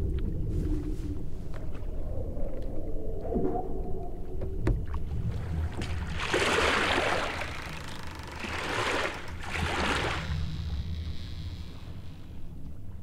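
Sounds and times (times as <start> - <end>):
low steady rumble: 0.0 - 13.0
water splashing around a rowboat: 4.6 - 12.3.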